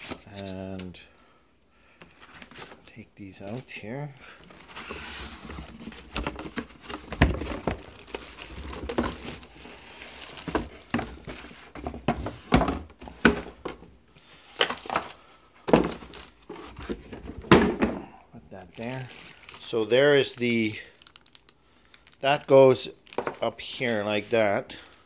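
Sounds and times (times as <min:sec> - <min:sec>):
packaging rustling: 0:00.0 - 0:00.9, 0:01.8 - 0:25.0
packaging thumps and knocks on desk: 0:04.4 - 0:18.2, 0:23.1 - 0:23.4.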